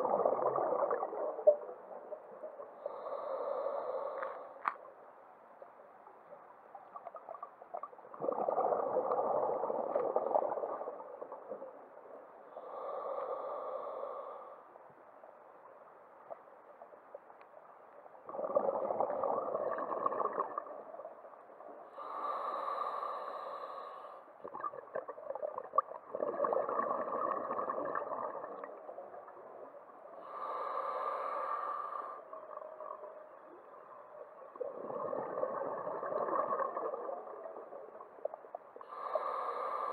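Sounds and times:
exhaled bubbles rushing: 0:00.0 - 0:01.8, 0:08.1 - 0:11.8, 0:18.3 - 0:21.0, 0:24.4 - 0:29.6, 0:34.6 - 0:38.0.

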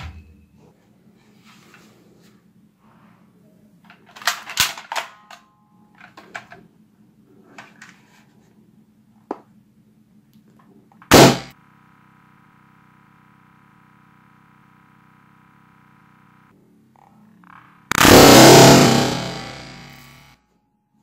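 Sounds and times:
toy gun clicking and clacking: 0:03.9 - 0:05.4
balloon popping: 0:17.9 - 0:20.1.

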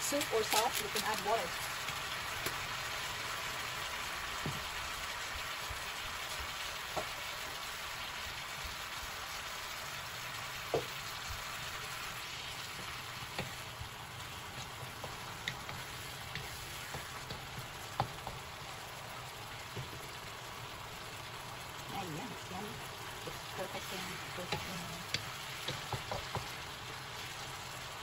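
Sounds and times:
vegetables sizzling in a wok: 0:00.0 - 0:28.0
wooden spatula tapping a pan: 0:10.7 - 0:11.0, 0:12.7 - 0:13.6, 0:14.6 - 0:18.5, 0:19.7 - 0:20.0, 0:23.3 - 0:26.6.

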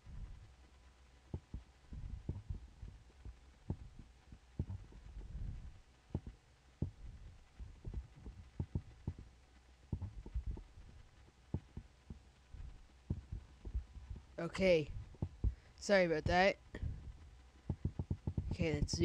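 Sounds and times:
low hum: 0:00.0 - 0:19.0
computer mouse clicking: 0:17.7 - 0:18.5.

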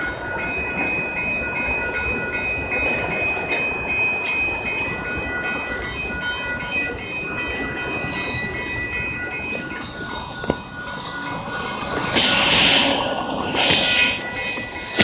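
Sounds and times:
train wheels on rails: 0:00.0 - 0:15.0
thin high tones: 0:05.8 - 0:15.0.

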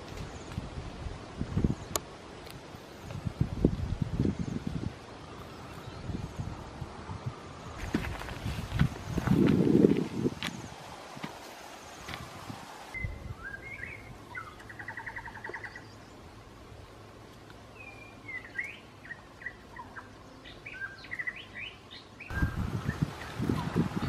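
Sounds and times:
small birds chirping and trilling: 0:12.9 - 0:16.4, 0:17.6 - 0:24.0.

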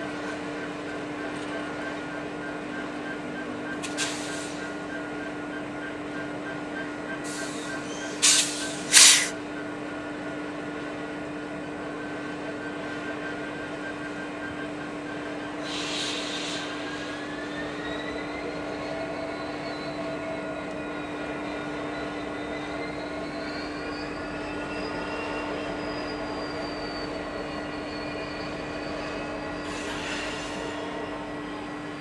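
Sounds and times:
diesel locomotive engine hum: 0:00.0 - 0:32.0
short hiss: 0:08.2 - 0:09.3.

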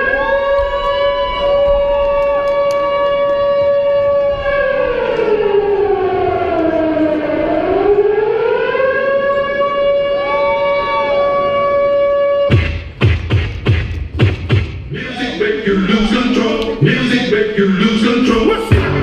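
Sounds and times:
air-raid siren wail: 0:00.0 - 0:12.6
dance music: 0:12.5 - 0:19.0.

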